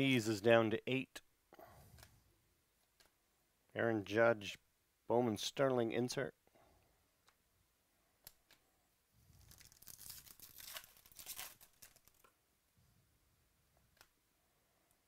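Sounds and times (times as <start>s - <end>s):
foil wrapper tearing and crinkling: 9.5s - 12.3s.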